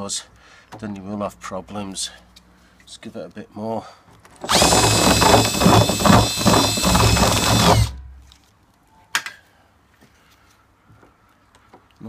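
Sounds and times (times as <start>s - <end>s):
cordless drill grinding plastic: 4.4s - 8.2s.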